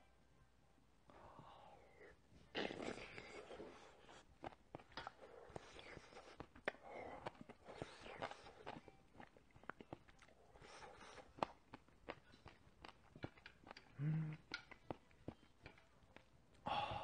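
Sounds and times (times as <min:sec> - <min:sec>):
man chewing with wet clicks: 0:01.9 - 0:16.7
closed-mouth hum: 0:13.8 - 0:14.6.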